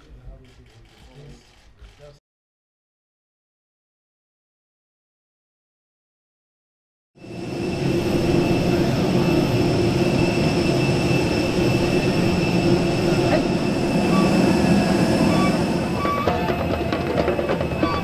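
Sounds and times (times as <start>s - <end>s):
jet engine rumble and whine: 7.2s - 18.0s.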